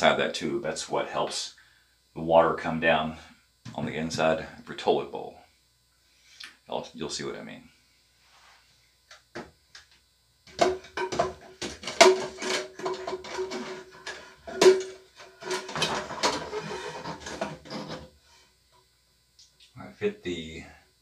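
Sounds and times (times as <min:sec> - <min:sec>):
plastic valve knocking in toilet tank: 0:10.5 - 0:13.6.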